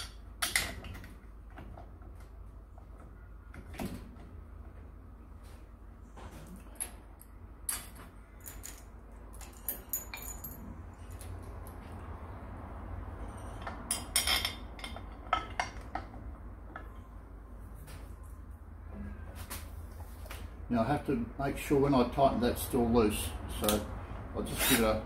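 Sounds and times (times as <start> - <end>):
metal screws and tools clinking: 7.7 - 11.4.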